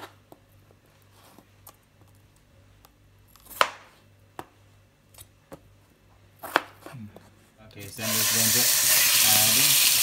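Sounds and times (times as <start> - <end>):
knife chopping on cutting board: 6.4 - 6.9.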